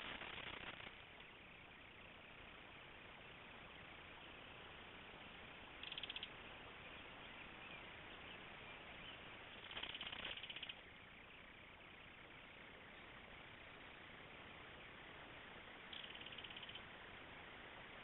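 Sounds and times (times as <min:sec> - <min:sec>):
faint steady hiss: 0:00.0 - 0:18.0
kingfisher rattling call: 0:05.8 - 0:06.4, 0:09.6 - 0:10.9, 0:15.9 - 0:16.8.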